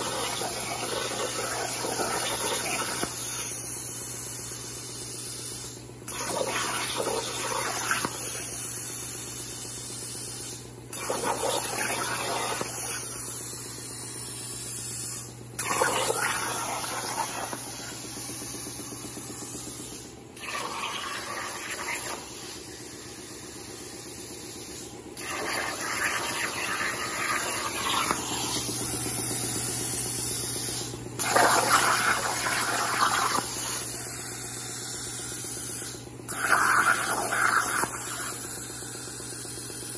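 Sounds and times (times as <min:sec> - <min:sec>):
plasma cutter torch hissing: 0:00.0 - 0:39.9.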